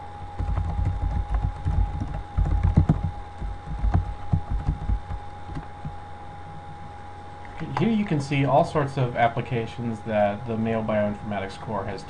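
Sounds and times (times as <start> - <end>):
keyboard typing: 0.4 - 6.0.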